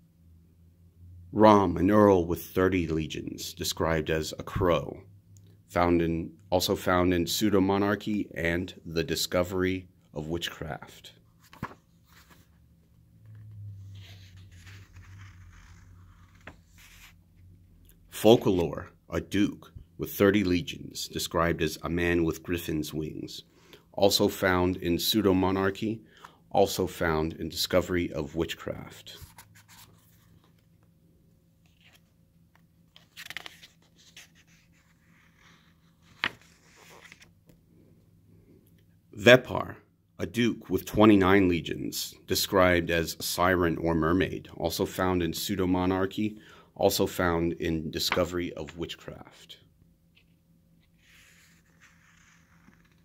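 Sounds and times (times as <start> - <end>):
book pages flipping: 11.3 - 17.2, 29.0 - 30.9, 31.6 - 37.6, 50.2 - 53.0.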